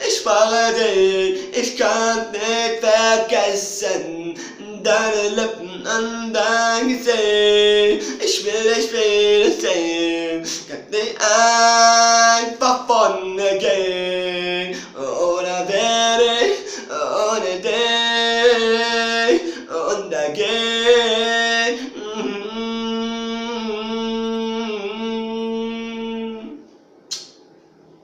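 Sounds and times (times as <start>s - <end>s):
man singing unaccompanied: 0.0s - 26.6s
short click: 27.1s - 27.4s.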